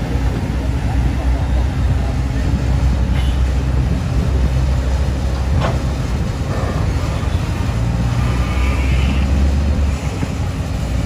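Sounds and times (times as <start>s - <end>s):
excavator diesel engine rumbling: 0.0s - 11.0s.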